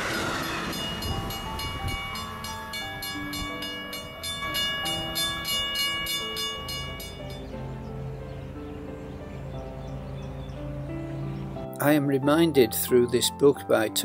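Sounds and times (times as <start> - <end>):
railroad crossing bell ringing: 0.0 - 7.6
low rumble: 0.0 - 10.4.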